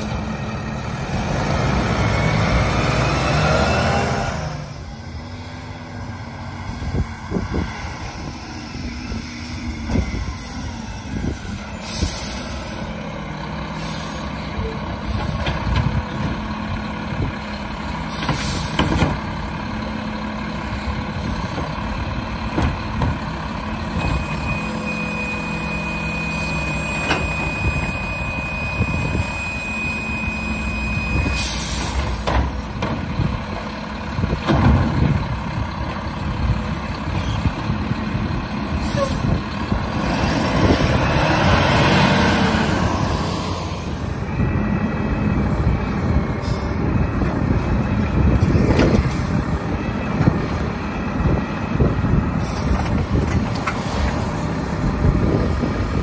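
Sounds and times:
garbage truck diesel engine: 0.0 - 56.0
air brake hisses: 11.8 - 12.8, 52.4 - 52.8
knocks and clanks: 22.5 - 23.3, 31.8 - 33.7, 34.3 - 35.2.

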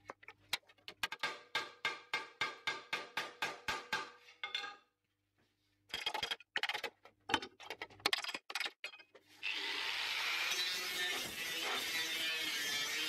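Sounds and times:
hammer tapping sheet steel: 1.2 - 4.2
angle grinder grinding steel: 9.4 - 13.0.

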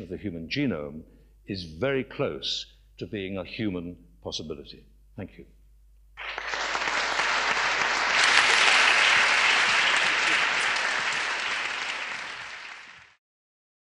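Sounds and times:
audience applauding: 6.2 - 13.2.

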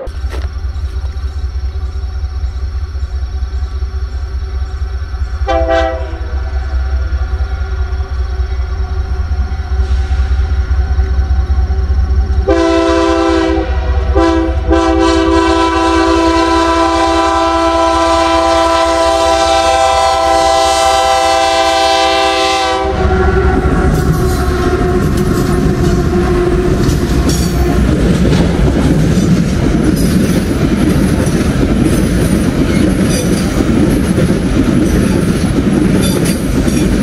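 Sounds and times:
locomotive rumble: 0.0 - 37.0
locomotive air horn: 5.4 - 6.5, 12.4 - 28.2.

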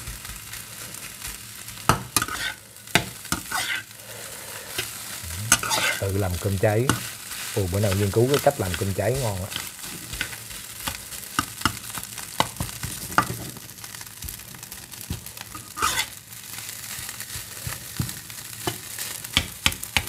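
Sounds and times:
rice sizzling in a wok: 0.0 - 20.0
metal spatula scraping pan: 2.0 - 2.6, 3.2 - 3.9, 4.8 - 6.0, 15.5 - 16.2.

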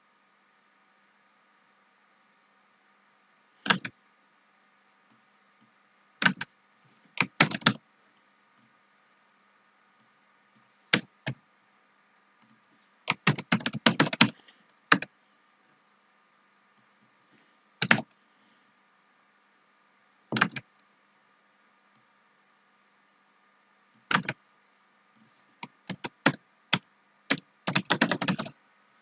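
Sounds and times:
computer keyboard typing: 3.6 - 4.0, 6.2 - 6.5, 7.2 - 7.8, 12.4 - 15.1, 17.8 - 18.1, 20.3 - 20.8, 24.0 - 24.4, 25.2 - 28.6.

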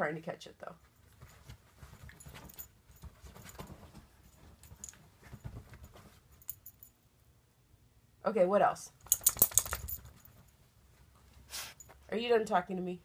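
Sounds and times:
puppy paws tapping and scuffling: 0.8 - 7.0, 9.0 - 12.1.

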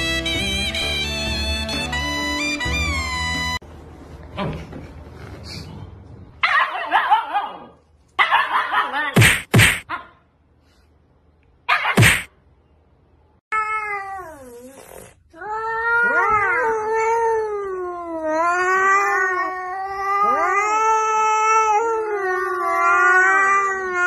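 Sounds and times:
cat yowling: 15.4 - 24.0.

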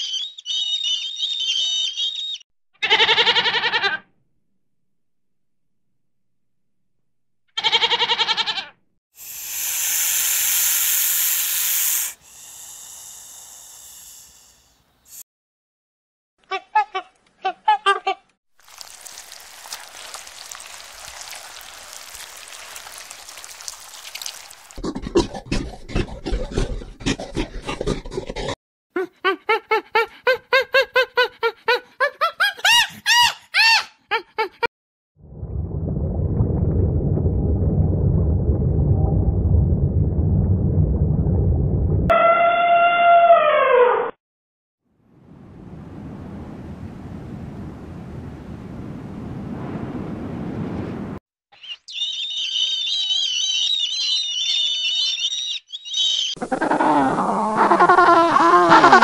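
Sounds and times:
goat bleating: 2.8 - 4.0, 7.6 - 8.7
snake hissing: 9.2 - 15.2
crackling noise: 35.3 - 42.1.

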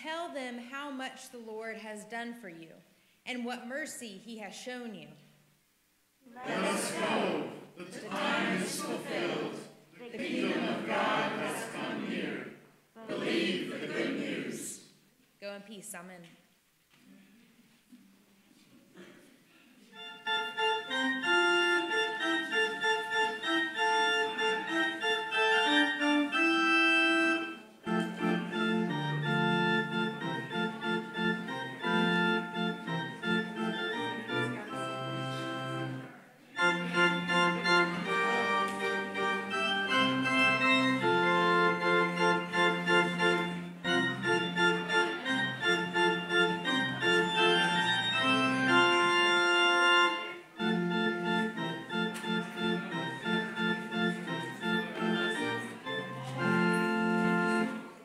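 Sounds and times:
church organ music: 6.4 - 14.7, 19.9 - 58.0.

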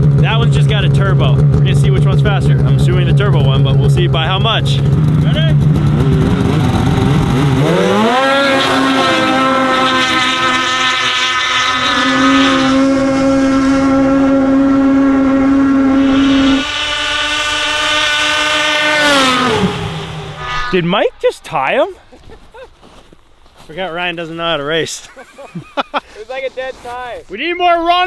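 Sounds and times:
snowmobile engines at full throttle: 0.0 - 22.8.

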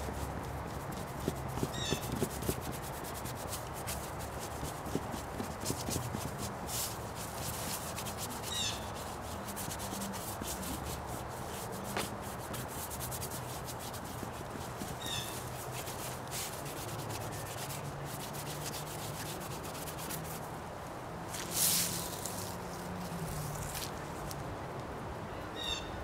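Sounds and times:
scratchy rubbing on a board: 0.0 - 20.5.

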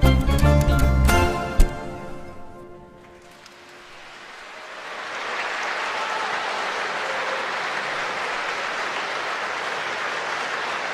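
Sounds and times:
audience applauding: 3.0 - 10.9.

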